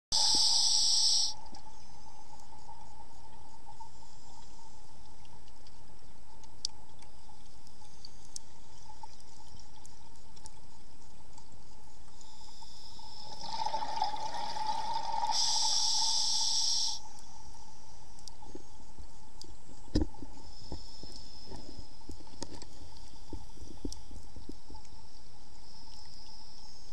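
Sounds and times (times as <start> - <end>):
underwater hiss: 0.1 - 1.4, 12.2 - 17.1
faint constant tone: 0.1 - 26.9.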